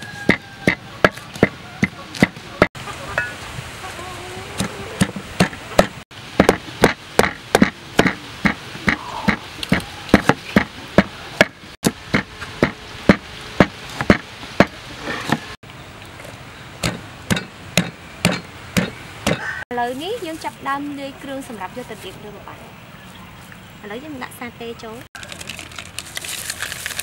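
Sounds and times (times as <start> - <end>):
wooden pestle pounding in mortar: 0.2 - 2.4, 5.0 - 9.4, 10.2 - 14.7, 16.8 - 19.5.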